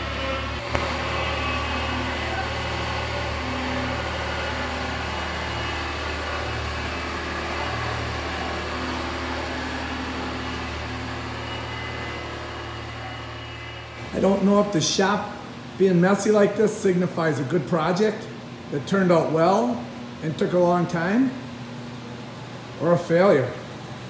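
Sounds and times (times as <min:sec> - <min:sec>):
skid steer engine running: 0:00.0 - 0:15.1.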